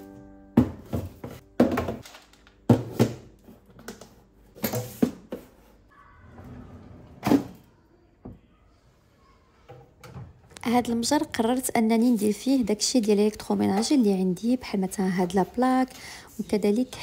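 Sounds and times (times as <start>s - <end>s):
plastic containers knocking: 0.6s - 4.1s.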